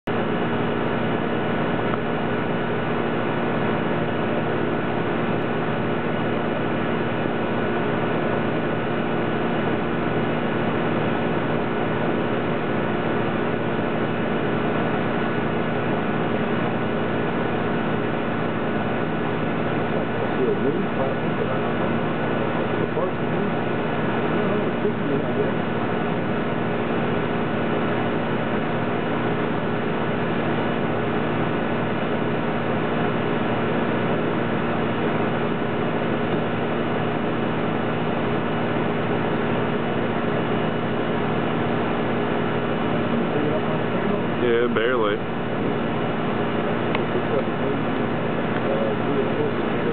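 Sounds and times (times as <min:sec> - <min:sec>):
steady hiss and hum: 0:00.1 - 0:49.9.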